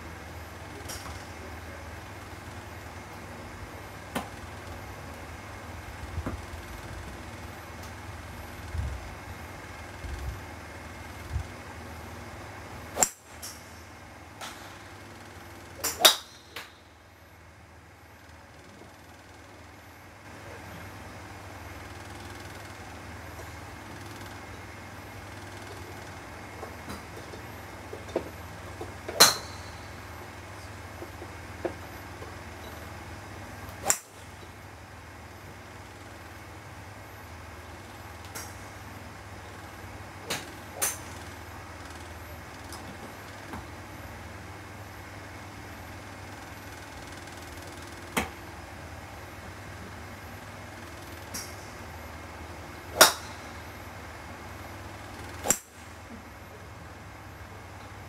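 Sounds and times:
steady low hum: 0:00.0 - 0:58.0
golf club striking ball: 0:13.0 - 0:13.6, 0:15.8 - 0:16.7, 0:33.8 - 0:34.2, 0:53.0 - 0:53.4, 0:55.4 - 0:55.7.

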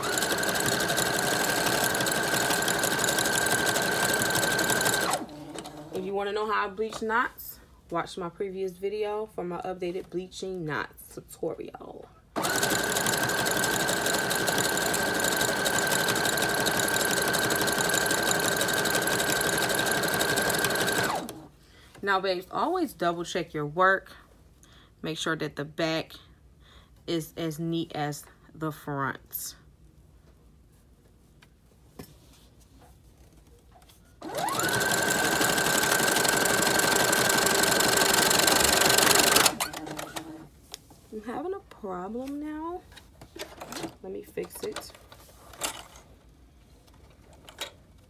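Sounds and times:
sewing machine running: 0:00.0 - 0:06.0, 0:12.4 - 0:21.5, 0:34.2 - 0:40.3.

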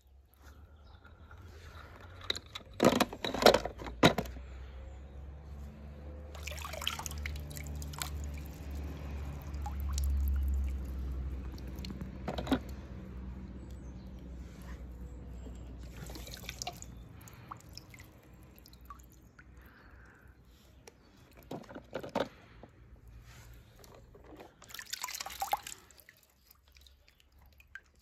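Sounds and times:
water dripping and trickling: 0:06.0 - 0:14.4, 0:15.0 - 0:21.6, 0:23.6 - 0:28.0.

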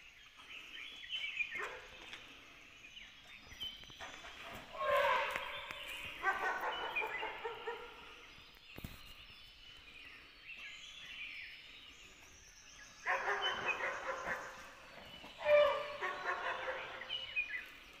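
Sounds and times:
dog barking: 0:06.2 - 0:08.1, 0:13.0 - 0:14.6, 0:15.5 - 0:17.4.

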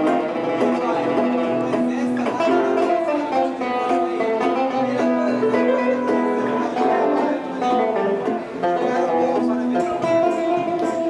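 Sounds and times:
acoustic guitar picking: 0:00.0 - 0:11.0.

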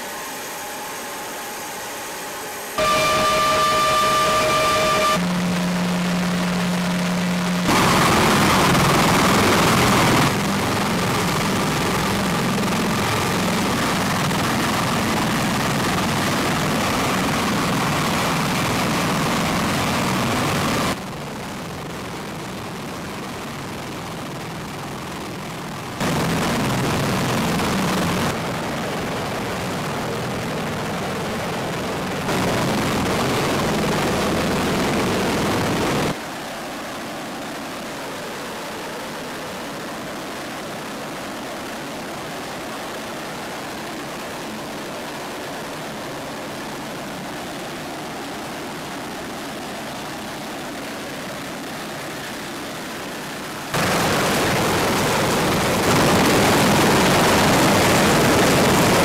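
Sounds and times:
helicopter engines and rotors: 0:00.0 - 0:59.0.

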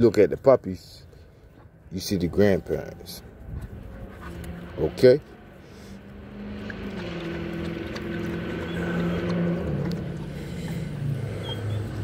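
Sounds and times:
vehicle engine hum passing: 0:01.1 - 0:12.0.

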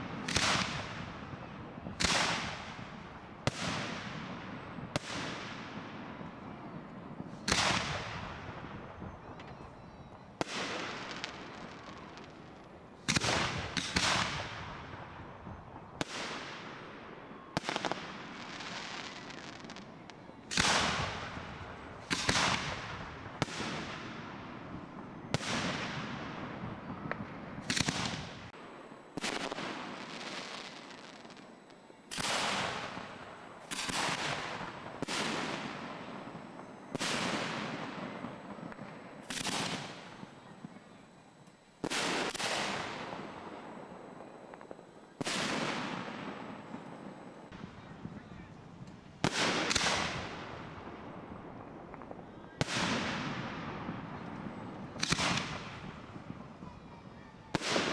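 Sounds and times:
firework bangs with echo: 0:00.0 - 0:01.2, 0:07.4 - 0:09.5, 0:32.1 - 0:40.8, 0:49.2 - 0:50.8, 0:51.9 - 0:56.8.

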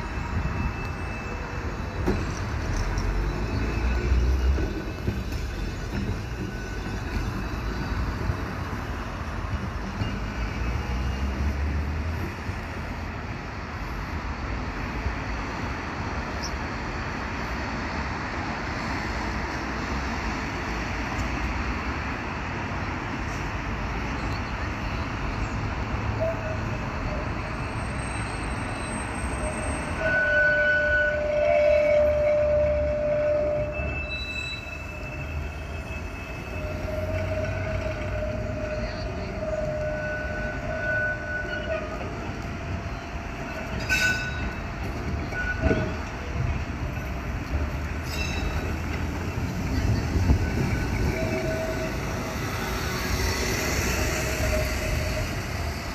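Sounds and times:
electric tram rumbling: 0:00.0 - 0:55.9
tram wheel squeal: 0:00.0 - 0:55.9.

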